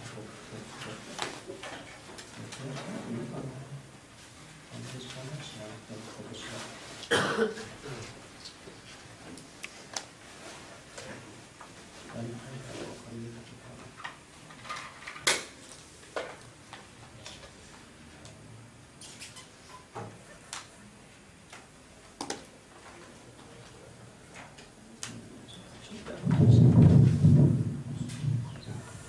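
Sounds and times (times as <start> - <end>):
loud low rustle: 26.2 - 28.6.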